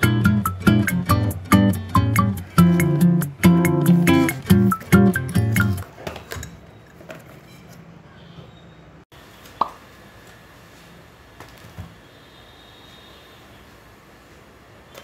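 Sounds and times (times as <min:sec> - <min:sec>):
acoustic guitar music: 0:00.0 - 0:05.8.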